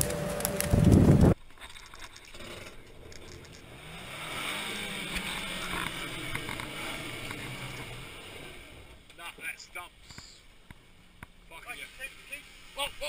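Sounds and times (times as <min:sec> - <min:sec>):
truck engine revving: 0:02.3 - 0:09.0.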